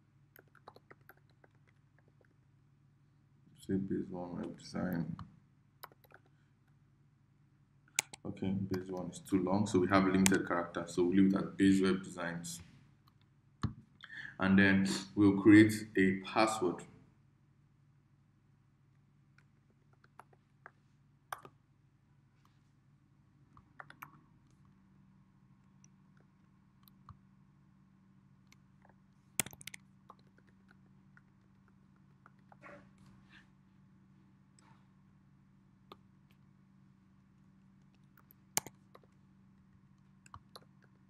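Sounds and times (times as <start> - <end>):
keyboard keystrokes: 29.4 - 30.5.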